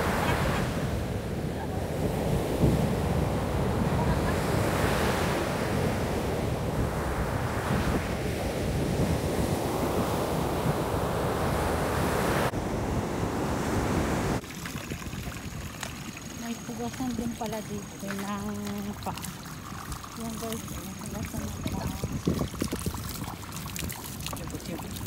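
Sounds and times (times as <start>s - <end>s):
ocean surf breaking on beach: 0.0s - 14.7s
wind buffeting microphone: 0.0s - 25.0s.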